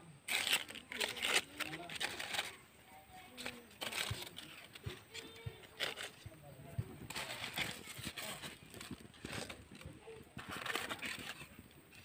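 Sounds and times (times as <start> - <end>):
twig fire crackling and popping: 6.9 - 12.0.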